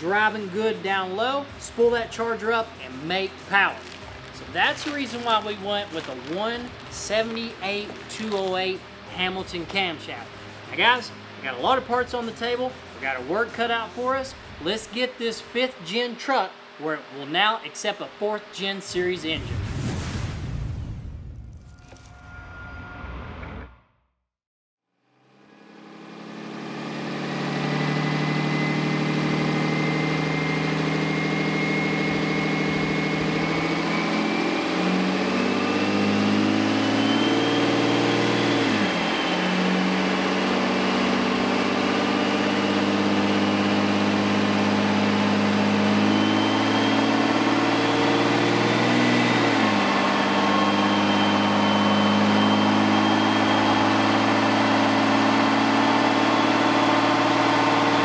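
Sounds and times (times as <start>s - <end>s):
faint turbo whistle: 46.1s - 47.9s, 49.7s - 54.8s.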